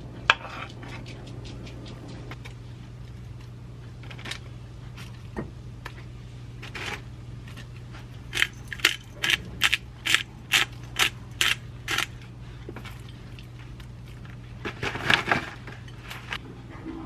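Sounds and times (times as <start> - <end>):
pepper grinder crunching: 8.2 - 12.3.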